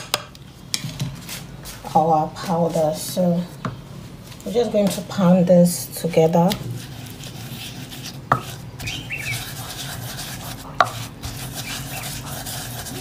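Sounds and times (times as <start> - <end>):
pestle scraping and crumbling: 6.5 - 13.0
pestle pounding in wooden mortar: 8.3 - 13.0.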